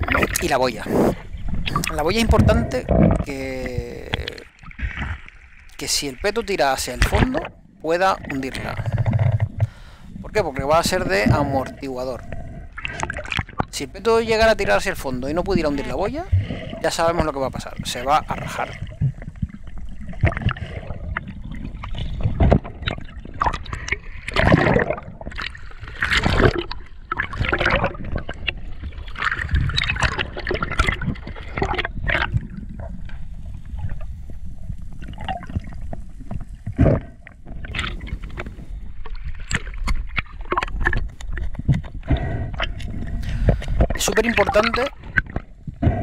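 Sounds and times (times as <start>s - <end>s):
underwater water sloshing: 0.0s - 46.0s
splashes and knocks: 7.0s - 7.6s, 15.8s - 32.8s.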